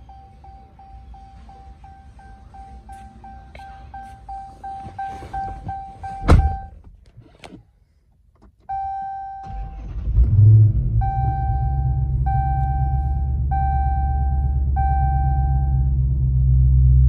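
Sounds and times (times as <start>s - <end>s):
dashboard warning chime: 0.0s - 6.8s, 8.7s - 9.7s, 11.0s - 15.9s
car engine starting and idling: 0.0s - 17.0s
loud thump: 5.6s - 6.7s.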